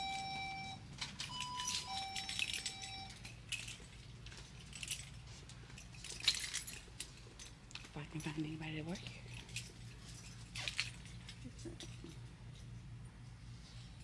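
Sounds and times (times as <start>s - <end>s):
two-note door chime: 0.0s - 3.3s
light clinks and jingles: 0.0s - 12.9s.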